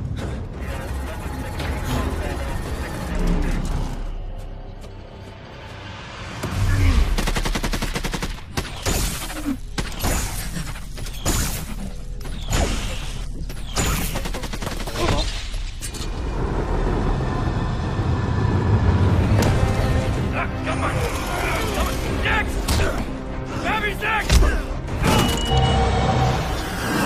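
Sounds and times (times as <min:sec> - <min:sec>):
film score music: 0:00.0 - 0:27.0
rapid automatic gunfire: 0:07.2 - 0:08.8.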